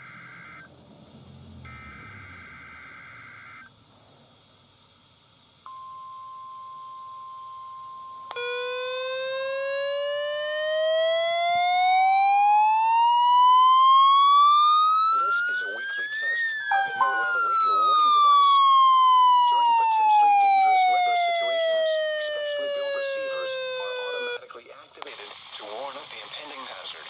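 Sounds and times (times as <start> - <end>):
rising siren alarm tone: 1.6 - 3.7, 8.4 - 24.4
warbling digital header tones: 15.0 - 18.4
steady alert tone: 16.6 - 18.4.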